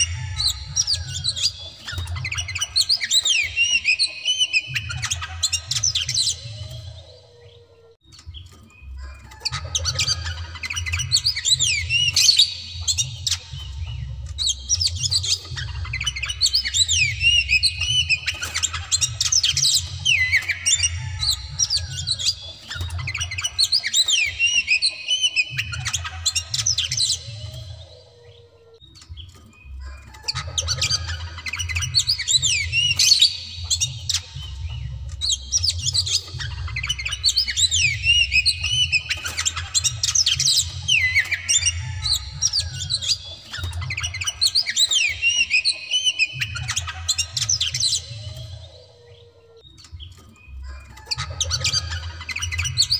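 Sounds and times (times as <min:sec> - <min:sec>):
magpie-robin song: 0:00.0 - 0:52.9.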